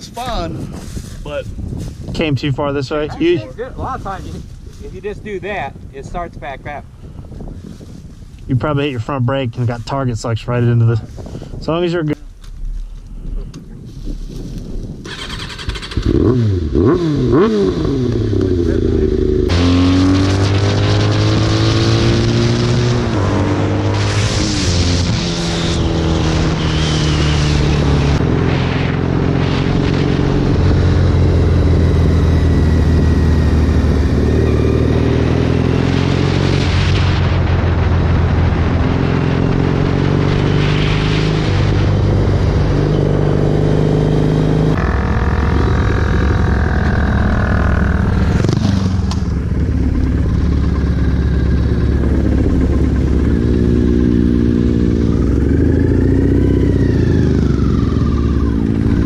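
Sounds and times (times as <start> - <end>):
wind rush: 0.0 - 59.0
motorcycle engine revving: 15.0 - 59.0.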